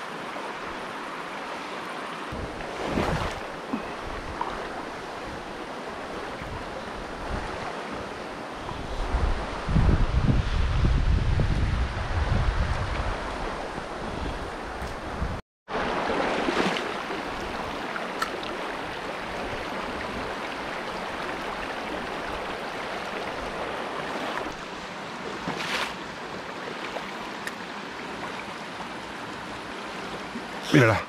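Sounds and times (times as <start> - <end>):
stream running over rocks: 0.0 - 9.9, 15.7 - 31.0
wind rumble on microphone: 2.3 - 15.4.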